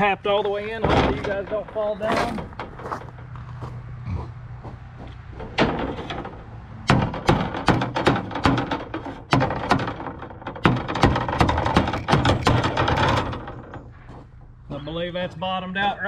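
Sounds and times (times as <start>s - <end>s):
sharp knocks tapping rebar: 5.4s - 14.0s.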